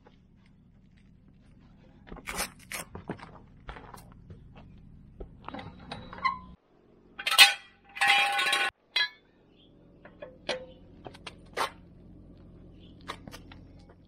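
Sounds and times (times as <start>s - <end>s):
metal tools clanking: 5.4s - 9.3s, 10.0s - 11.8s.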